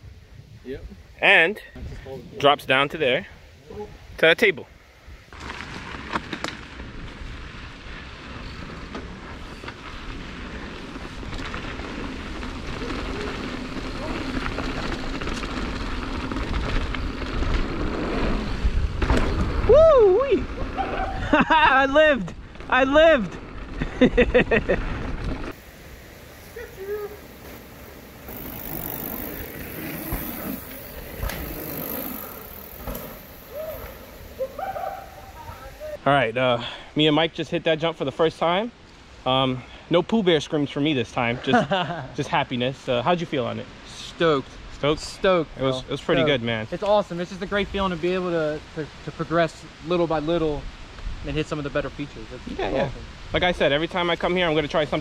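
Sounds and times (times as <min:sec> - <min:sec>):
bike tyre noise on dirt: 0:04.8 - 0:36.3
wind rumbling on microphone: 0:05.0 - 0:21.5
bike knocks and rattles: 0:28.2 - 0:34.0.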